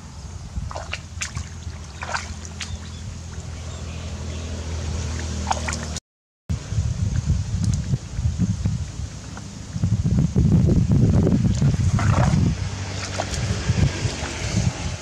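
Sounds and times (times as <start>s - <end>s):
hands splashing in water: 0.7s - 3.6s, 5.1s - 6.0s, 11.5s - 14.4s.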